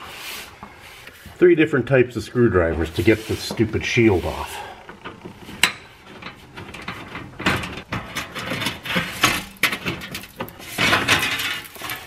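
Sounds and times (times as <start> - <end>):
metal shield scraping and clattering: 2.8 - 12.0.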